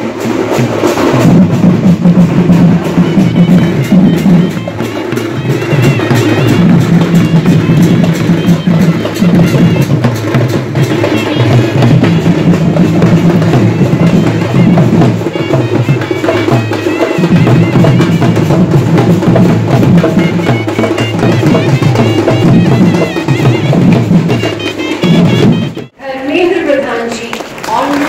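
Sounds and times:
hand drums beaten: 0.0 - 26.0
wavering high melody: 2.8 - 10.0.

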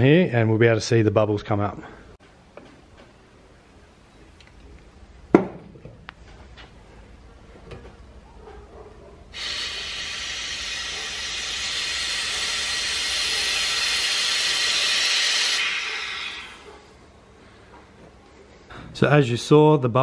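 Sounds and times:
compressed air hissing: 9.3 - 16.8.

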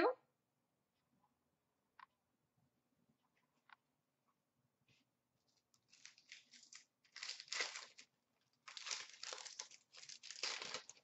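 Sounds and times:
wrapper tearing and crinkling: 5.7 - 11.0.

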